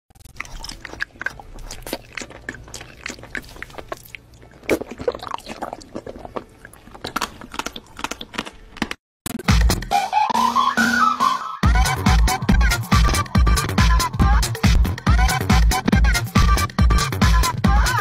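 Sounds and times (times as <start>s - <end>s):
crunchy bites and chewing: 0.1s - 9.0s.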